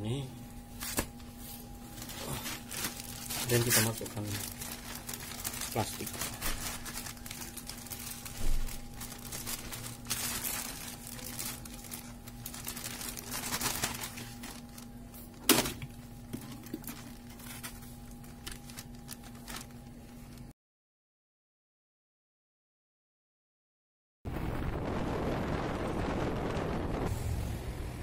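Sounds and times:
plastic bag crinkling: 0.6 - 20.5.

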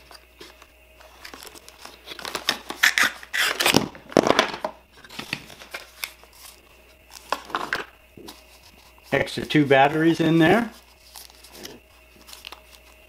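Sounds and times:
plastic wrapping crinkling: 10.5 - 13.0.

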